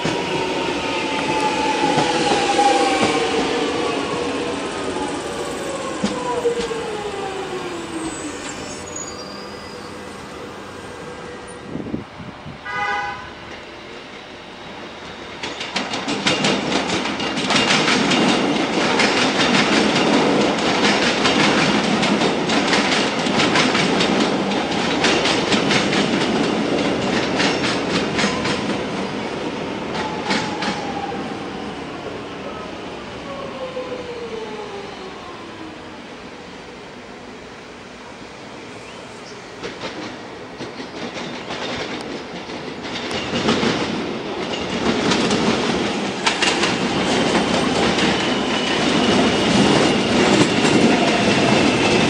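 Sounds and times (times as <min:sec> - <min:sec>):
train horn toot: 0:12.6 - 0:13.5
train wheels clattering over rail joints: 0:15.4 - 0:28.8, 0:39.6 - 0:52.0.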